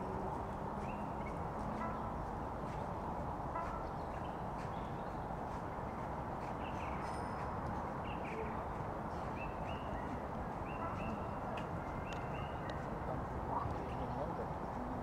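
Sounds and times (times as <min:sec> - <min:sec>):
frogs croaking: 0:08.4 - 0:15.0
bird whistled calls: 0:09.3 - 0:12.9.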